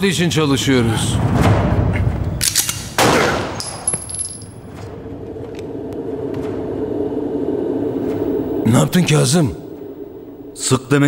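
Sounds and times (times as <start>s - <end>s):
pistol shots echoing: 2.6s - 3.9s
steady low drone: 4.1s - 11.0s.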